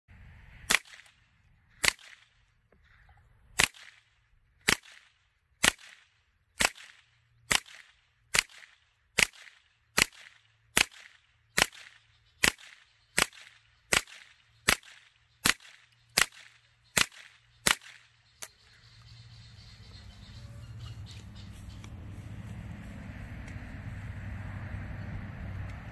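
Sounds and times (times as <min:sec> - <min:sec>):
suppressed gunshots: 0:03.6 - 0:18.2.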